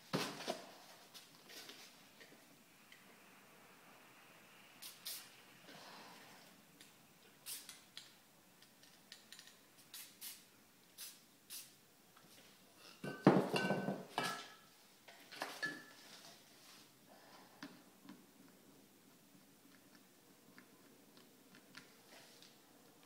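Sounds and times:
spray paint can hissing: 0:04.8 - 0:05.3, 0:07.4 - 0:07.8, 0:09.8 - 0:10.4, 0:11.0 - 0:11.8.

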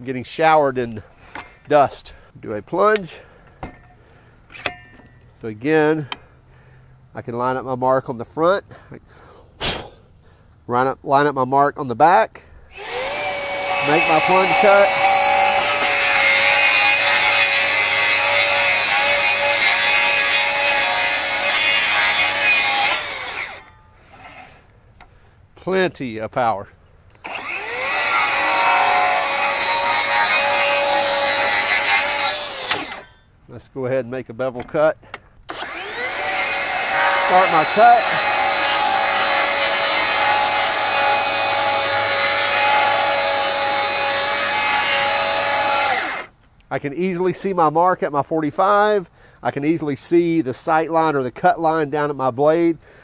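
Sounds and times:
saw motor whine: 0:12.7 - 0:24.5, 0:27.2 - 0:33.1, 0:35.5 - 0:46.3
circular saw cutting wood: 0:12.7 - 0:24.7, 0:27.2 - 0:33.2, 0:35.5 - 0:46.3
saw blade spinning down: 0:12.8 - 0:24.5, 0:27.2 - 0:33.2, 0:35.5 - 0:46.3.

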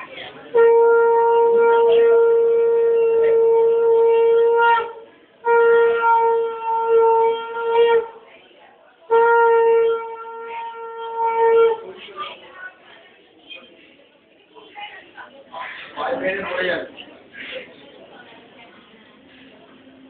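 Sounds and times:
conch shell blasts: 0:00.5 - 0:08.2, 0:09.1 - 0:11.8.

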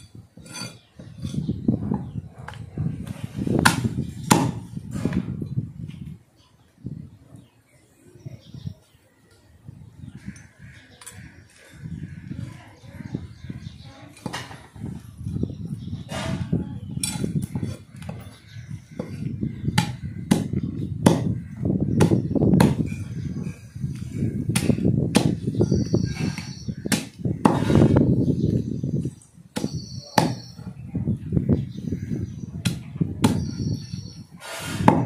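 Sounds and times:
cleaver chopping through carcass: 0:24.5 - 0:25.4, 0:29.6 - 0:30.5.

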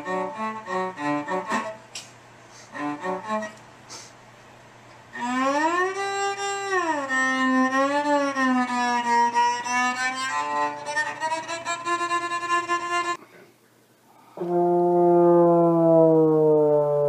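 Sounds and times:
bowed electric cello: 0:00.0 - 0:01.8, 0:02.7 - 0:03.6, 0:05.1 - 0:13.2.

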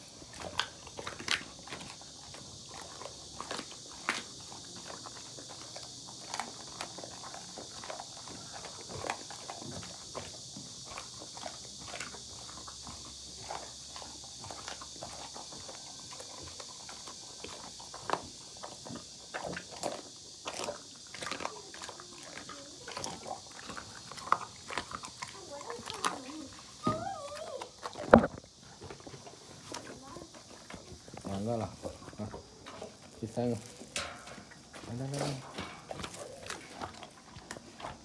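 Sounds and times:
dog crunching bones: 0:00.0 - 0:38.0.

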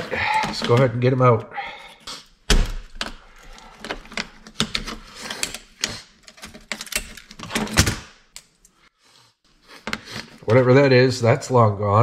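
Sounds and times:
screwdriver clicking and scraping: 0:02.9 - 0:07.6.

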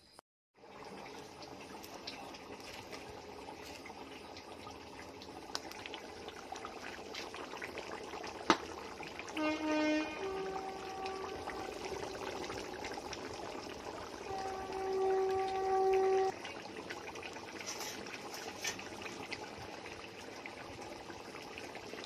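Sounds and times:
pot bubbling and hissing: 0:00.6 - 0:22.0
wood fire pops and crackles: 0:01.7 - 0:09.3.

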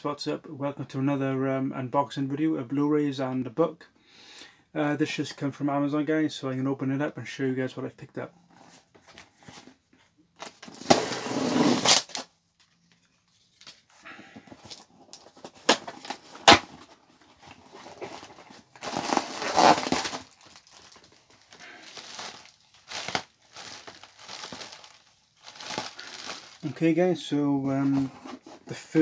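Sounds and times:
packaging tearing and rustling: 0:10.4 - 0:12.3, 0:13.3 - 0:26.7.

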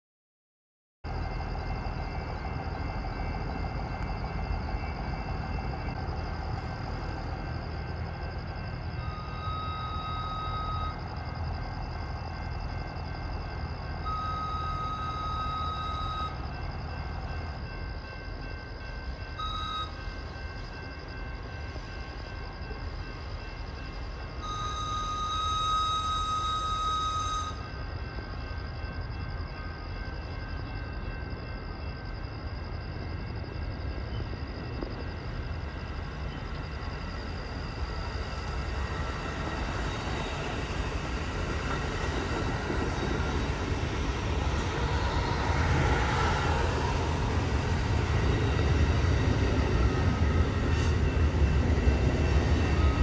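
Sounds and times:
train rumbling on tracks: 0:01.1 - 0:53.0
shrill air whistle blasts: 0:24.4 - 0:27.6.

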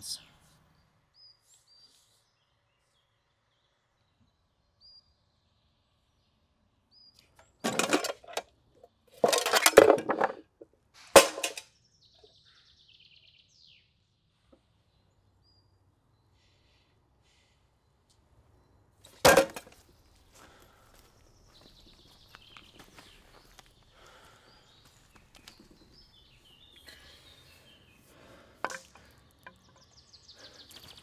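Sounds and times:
bird chirps: 0:00.0 - 0:07.4, 0:19.9 - 0:31.0.

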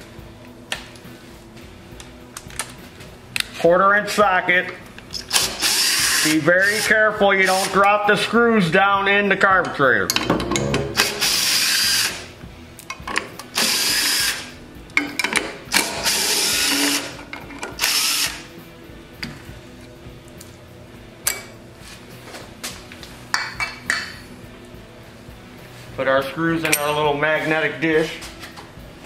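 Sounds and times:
cordless drill whirring: 0:17.8 - 0:18.4.

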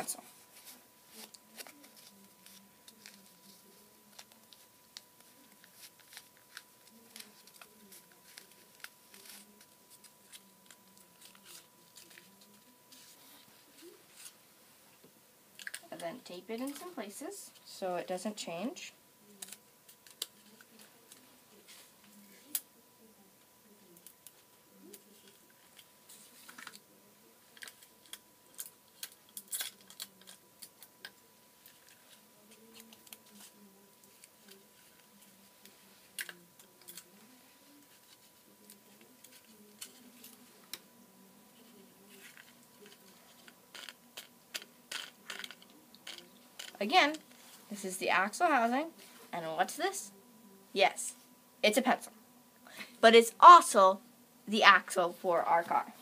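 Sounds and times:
cardboard tube crackling: 0:00.0 - 0:14.4
adhesive tape crackling and tearing: 0:05.4 - 0:12.6, 0:19.4 - 0:21.2, 0:27.5 - 0:34.6, 0:42.2 - 0:46.8.

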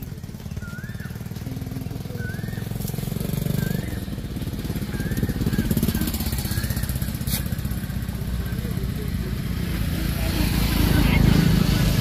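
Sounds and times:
small engine rumbling: 0:00.0 - 0:12.0
bird whistling: 0:00.2 - 0:07.3.

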